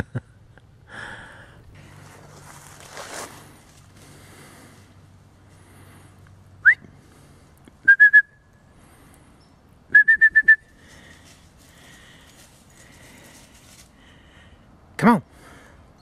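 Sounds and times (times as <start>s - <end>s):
person whistling for a dog: 7.8s - 8.4s, 9.9s - 10.7s.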